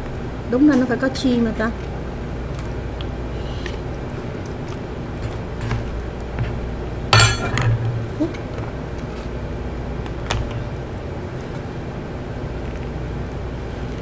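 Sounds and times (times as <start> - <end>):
steady low hum: 0.0 - 14.0
tableware clinking: 7.2 - 8.0.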